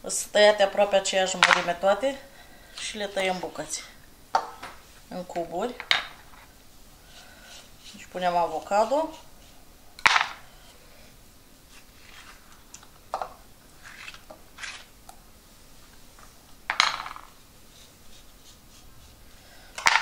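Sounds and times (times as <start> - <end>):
spoon scraping avocado flesh: 6.2 - 9.7, 17.7 - 19.4.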